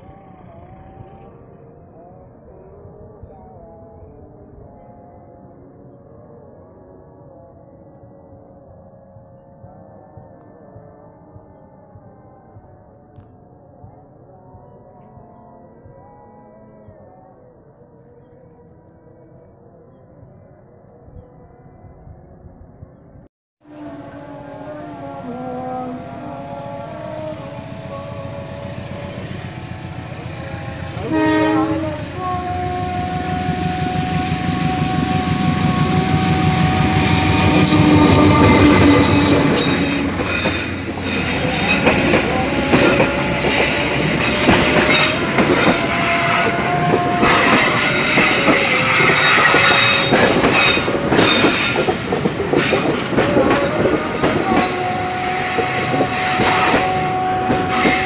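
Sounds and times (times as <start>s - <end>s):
locomotive engine: 23.7s - 58.0s
train horn blast: 23.7s - 58.0s
train wheels squealing: 23.7s - 58.0s
wheels clacking over rail joints: 27.6s - 58.0s.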